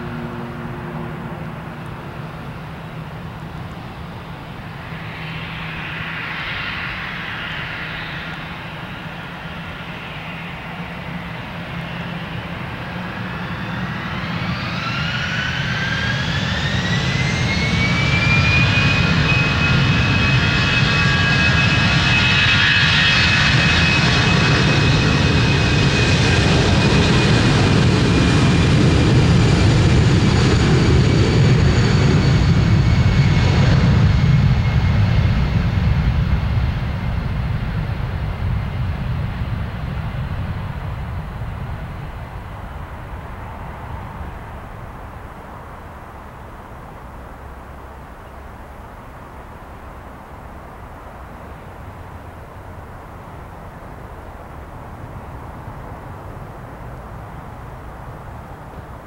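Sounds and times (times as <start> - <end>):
jet engines spooling up: 0.0 - 44.8.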